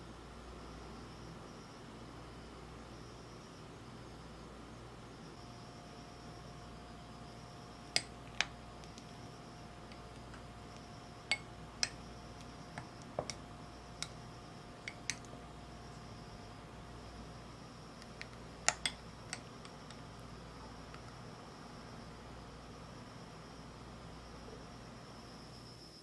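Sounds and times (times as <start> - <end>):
faint steady hum: 0.0 - 26.0
spoon clinking against glass: 11.3 - 12.0, 14.8 - 15.3, 18.2 - 20.0.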